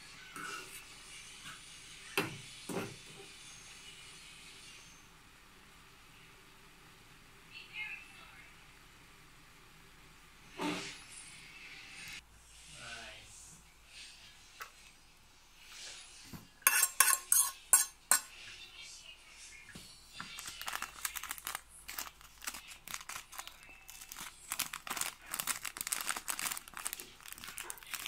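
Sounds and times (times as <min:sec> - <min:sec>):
plastic sachet tearing and rustling: 0:20.3 - 0:28.0.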